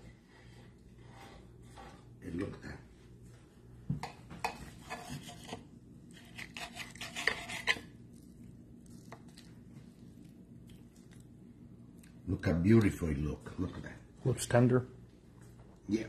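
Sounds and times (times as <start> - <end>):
knife scraping on plate: 4.5 - 8.0.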